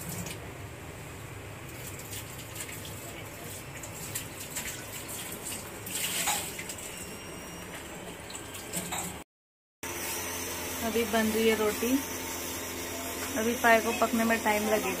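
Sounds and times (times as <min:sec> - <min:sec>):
tap water running: 0:01.6 - 0:07.1.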